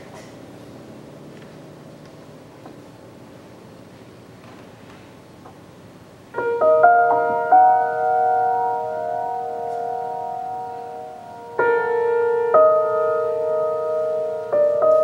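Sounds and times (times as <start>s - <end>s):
grand piano notes: 6.3s - 15.0s.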